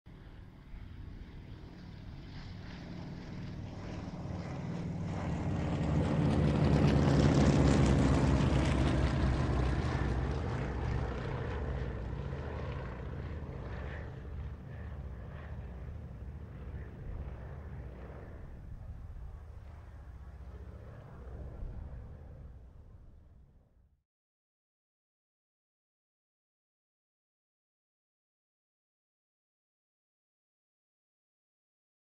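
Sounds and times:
light planes droning past: 0:00.1 - 0:23.9.

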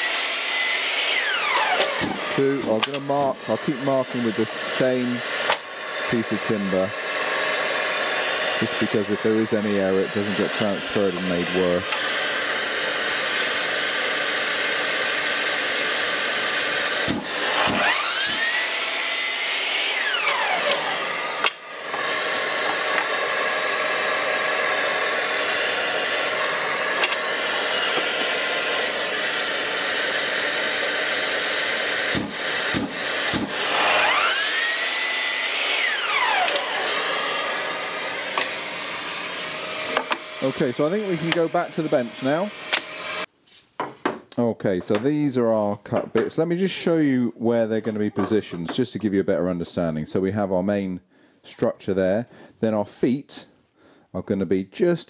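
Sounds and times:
dust extractor running: 0:00.0 - 0:43.3
mitre saw cutting wood: 0:00.0 - 0:43.3
saw switch clicks: 0:02.8 - 0:03.0, 0:20.1 - 0:21.6, 0:27.0 - 0:27.2, 0:36.4 - 0:36.8.

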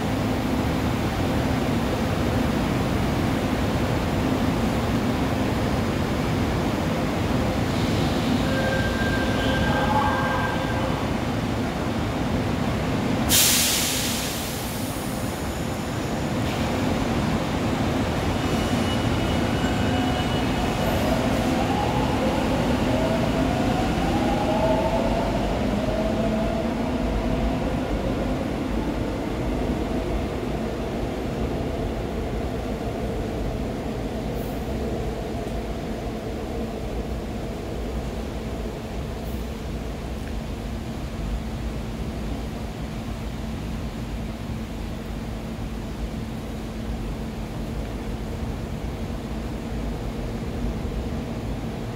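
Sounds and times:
train wheels rumbling on rail: 0:00.0 - 0:51.9
sudden loud hiss: 0:13.3 - 0:15.5.

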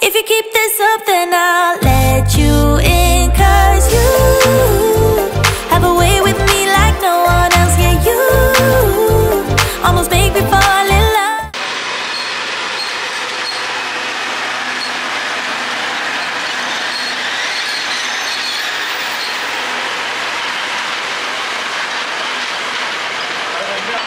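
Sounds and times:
train wheels rumbling on rails: 0:12.0 - 0:24.0
faint high squeal: 0:15.9 - 0:19.7.

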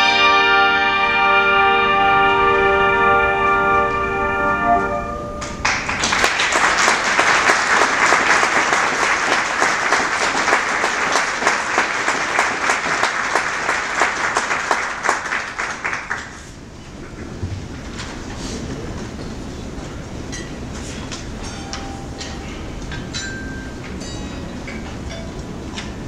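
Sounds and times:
crowd applauding: 0:05.4 - 0:16.6
handbell chord: 0:23.2 - 0:25.4.

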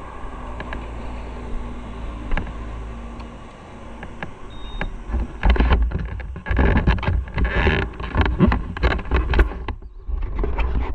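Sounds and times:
knocks and rustles: 0:05.1 - 0:10.9.

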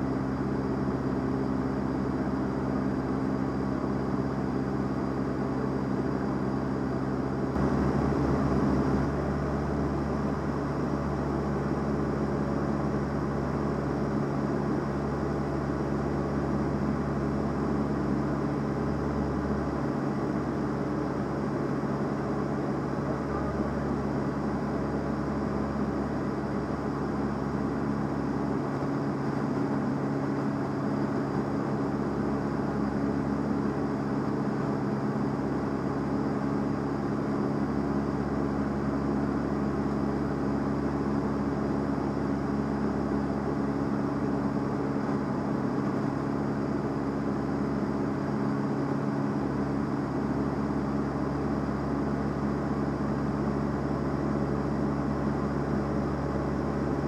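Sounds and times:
propeller plane engine drone: 0:00.0 - 0:57.0.

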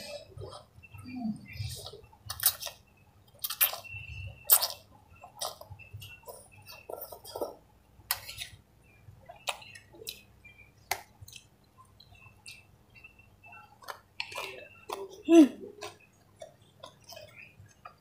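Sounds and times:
wet chewing and mouth smacks: 0:01.6 - 0:08.5, 0:10.9 - 0:12.7, 0:13.8 - 0:15.2, 0:15.8 - 0:18.0.

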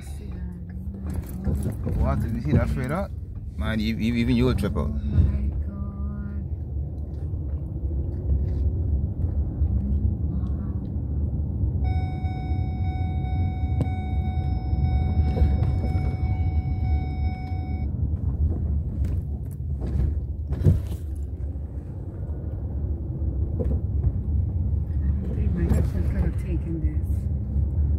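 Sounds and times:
car road rumble: 0:00.0 - 0:27.9
high-pitched tone: 0:11.8 - 0:17.9.

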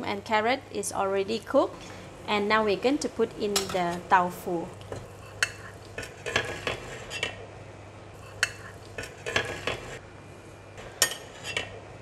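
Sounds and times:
spoon clinking on plate and pot: 0:03.5 - 0:04.0.

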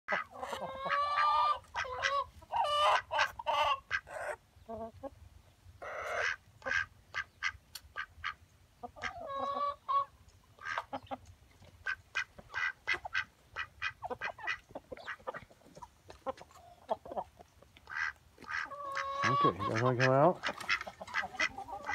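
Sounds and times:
chickens clucking and squawking: 0:00.1 - 0:21.9.

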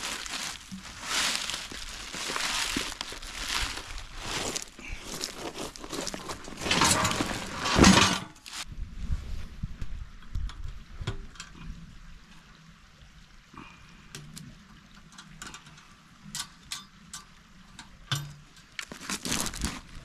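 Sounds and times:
plastic and cardboard crinkling: 0:00.0 - 0:08.6, 0:18.8 - 0:20.0
small clicks and knocks: 0:14.1 - 0:19.3.

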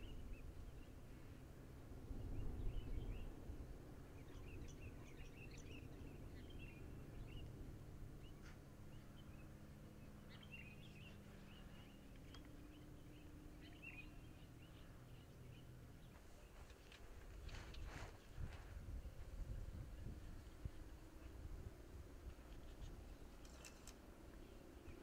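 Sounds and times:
faint low outdoor rumble: 0:00.0 - 0:25.0
small birds chirping: 0:04.0 - 0:25.0.

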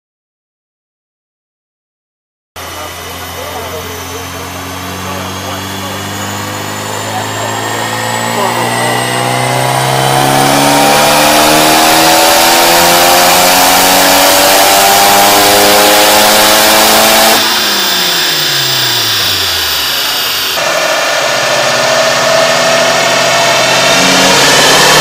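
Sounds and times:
engine idling: 0:02.6 - 0:10.7, 0:17.4 - 0:25.0
car engine accelerating on dynamometer: 0:02.6 - 0:25.0.

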